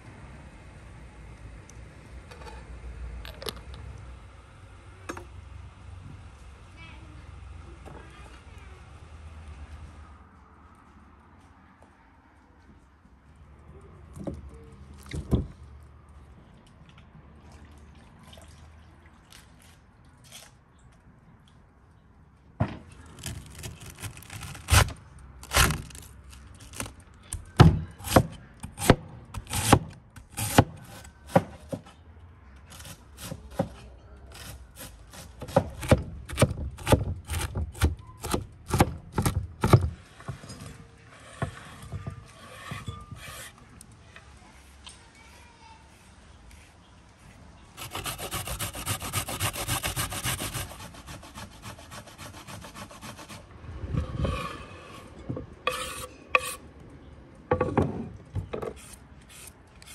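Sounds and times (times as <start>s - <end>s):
scraping on cutting board: 41.1s - 43.6s, 47.8s - 56.6s.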